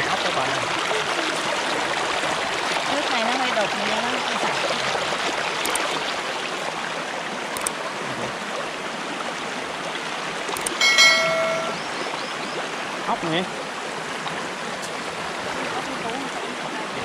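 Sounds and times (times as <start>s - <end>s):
stream splashing over rocks: 0.0s - 17.0s
faint clicks: 5.6s - 5.9s, 7.6s - 7.8s, 10.5s - 10.8s
short chime: 10.8s - 11.9s.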